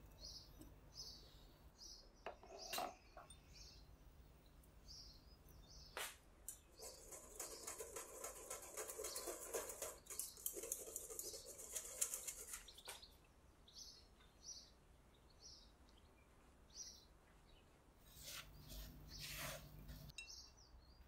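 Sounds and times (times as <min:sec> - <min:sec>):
whisk scratching on metal sieve: 0:06.7 - 0:12.9, 0:18.1 - 0:20.1
spatula swishing in flour: 0:18.1 - 0:20.1.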